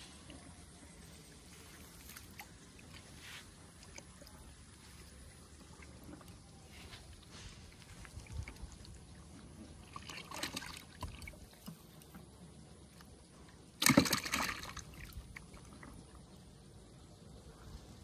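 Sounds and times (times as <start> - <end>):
soft rustle: 1.4 - 4.0, 4.6 - 8.9
splash in water: 9.8 - 11.4, 13.8 - 15.6.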